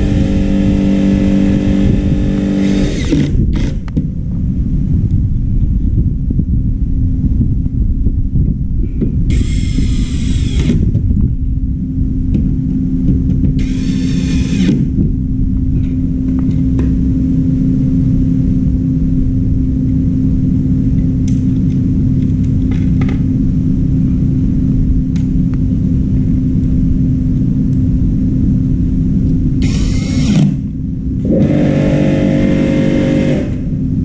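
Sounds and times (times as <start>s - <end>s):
low machine hum: 0.0s - 34.0s
power screwdriver whirring: 2.2s - 3.9s, 9.3s - 10.8s, 13.6s - 14.8s, 29.6s - 30.5s.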